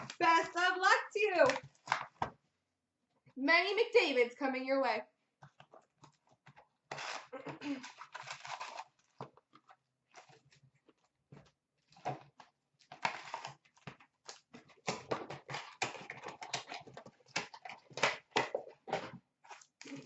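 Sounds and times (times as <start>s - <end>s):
card pack wrappers crinkling: 0.0s - 2.1s.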